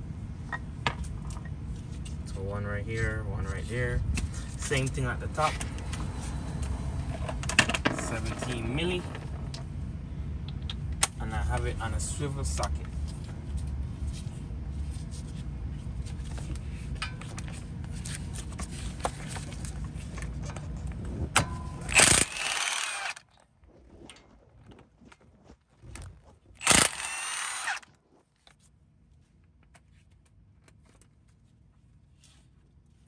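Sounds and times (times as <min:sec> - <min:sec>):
low rumble: 0:03.8 - 0:11.0
impact wrench spinning: 0:21.7 - 0:23.2, 0:26.6 - 0:27.9.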